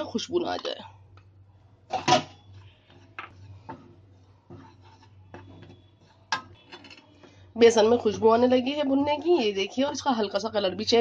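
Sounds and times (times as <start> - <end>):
spoon scraping metal pan: 2.0 - 7.2.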